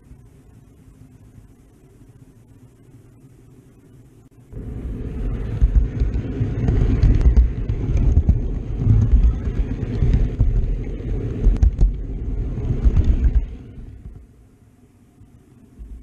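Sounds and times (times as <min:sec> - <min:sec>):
model train rumbling: 0:04.6 - 0:14.2
wheels clicking over rail joints: 0:04.8 - 0:14.3.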